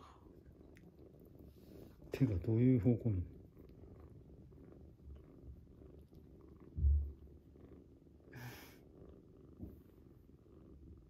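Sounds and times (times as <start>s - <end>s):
kitten purring: 0.0s - 11.0s
low thump: 6.8s - 7.2s.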